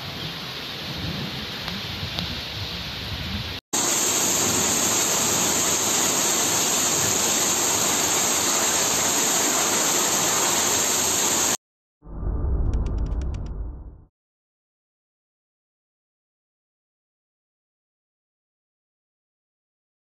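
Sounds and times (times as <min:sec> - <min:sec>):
heavy rain pouring: 0:03.8 - 0:11.6.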